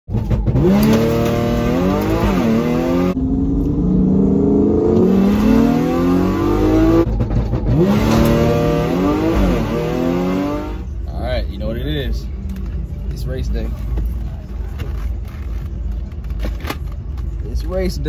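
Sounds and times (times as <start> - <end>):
car engine at full throttle: 0.1 - 11.2.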